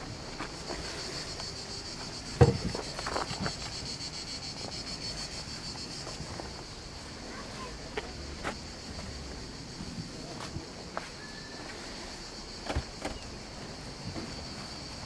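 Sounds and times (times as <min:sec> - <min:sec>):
cicadas buzzing: 0:00.0 - 0:15.0.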